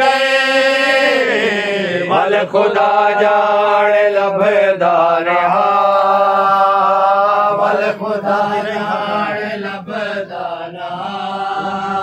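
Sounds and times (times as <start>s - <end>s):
man chanting a lament: 0.0s - 12.0s.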